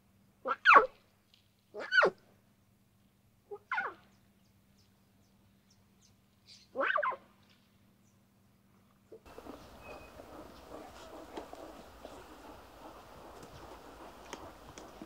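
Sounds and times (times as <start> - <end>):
lion cub calling: 9.3 - 15.0.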